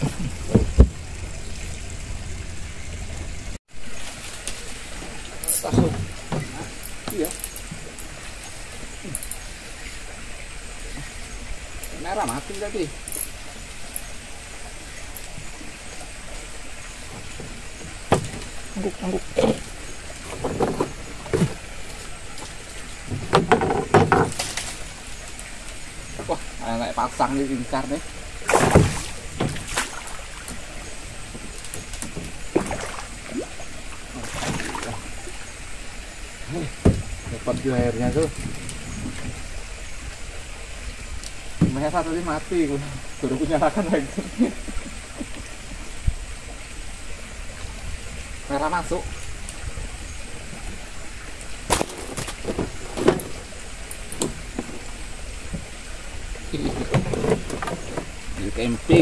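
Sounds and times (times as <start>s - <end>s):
knocks and thumps in wooden boat: 0.0s - 1.3s, 5.0s - 7.9s, 17.0s - 21.7s, 22.4s - 24.8s, 28.5s - 30.1s, 31.3s - 33.0s, 36.8s - 39.4s, 41.6s - 42.0s, 51.7s - 53.5s, 54.2s - 54.9s, 56.5s - 58.2s
water splashing against boat: 0.0s - 40.2s, 41.2s - 59.0s.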